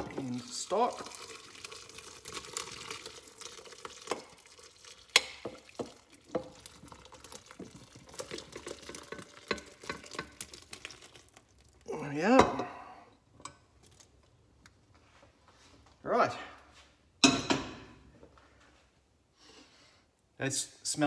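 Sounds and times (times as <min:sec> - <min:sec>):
liquid pouring: 0:00.0 - 0:13.0.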